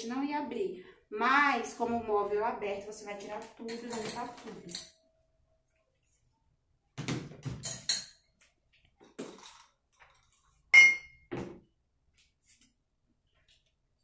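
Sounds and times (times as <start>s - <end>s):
glass clink ringing: 10.7s - 11.3s.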